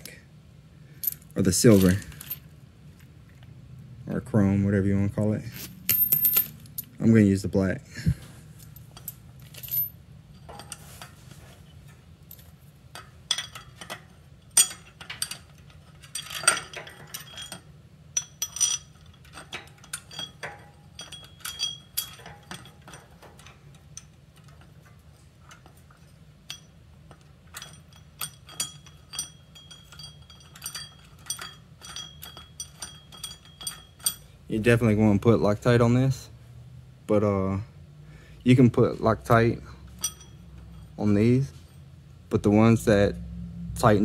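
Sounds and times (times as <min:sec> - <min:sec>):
metal bolts clinking: 0:01.0 - 0:02.6, 0:05.6 - 0:07.1, 0:08.6 - 0:35.0, 0:39.0 - 0:41.8.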